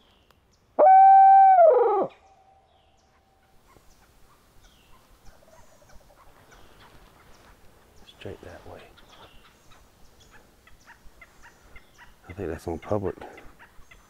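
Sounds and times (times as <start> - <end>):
owl hooter call: 0.8 - 2.6.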